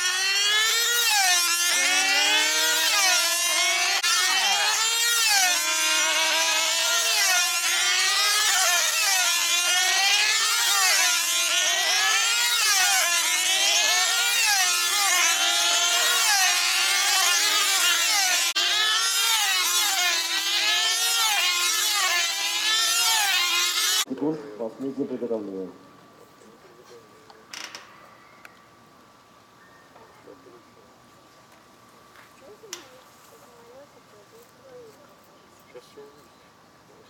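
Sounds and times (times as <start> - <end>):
model aircraft engines whining: 0.0 - 24.1.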